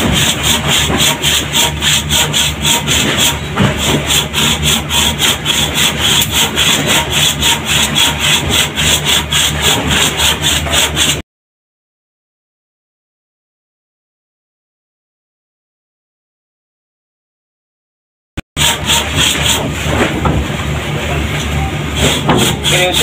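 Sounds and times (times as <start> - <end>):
handsaw cutting wood: 0.0 - 11.2, 18.6 - 20.3, 22.0 - 23.0.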